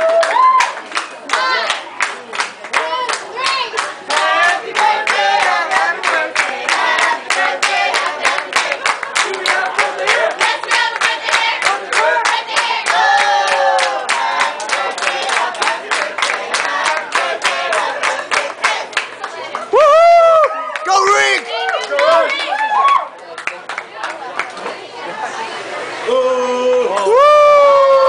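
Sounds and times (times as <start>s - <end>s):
rhythmic clapping: 0.0s - 19.8s
group singing a celebration song: 3.6s - 19.1s.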